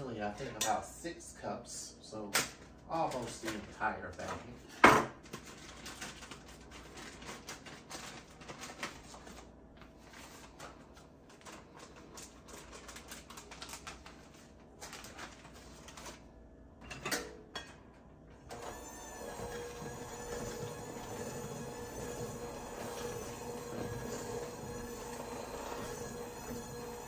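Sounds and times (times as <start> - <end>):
plastic bag crinkling: 2.9 - 4.5, 5.2 - 16.3
hand mixer knocks and clatters: 18.6 - 27.0.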